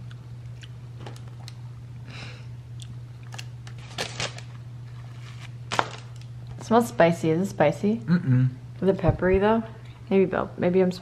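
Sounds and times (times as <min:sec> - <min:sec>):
bread crust crackling: 0:03.3 - 0:06.5.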